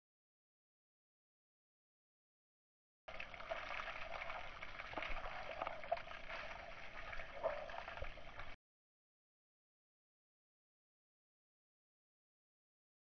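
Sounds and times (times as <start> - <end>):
hose water splashing: 3.1 - 8.6.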